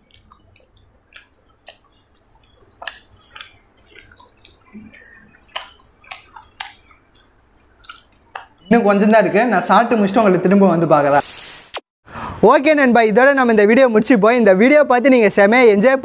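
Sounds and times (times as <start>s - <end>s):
chewing crunches: 0.0s - 8.7s
wet mouth clicks: 0.0s - 8.7s.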